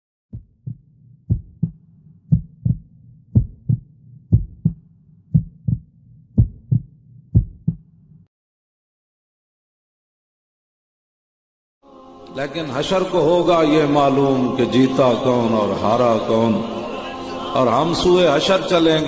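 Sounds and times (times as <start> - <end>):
heartbeat thumps: 0.3 - 8.2.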